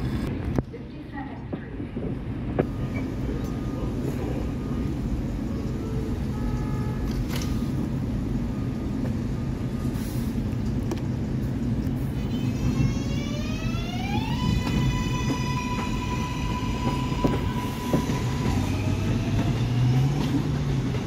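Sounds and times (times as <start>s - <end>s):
subway train equipment hum: 0.0s - 21.0s.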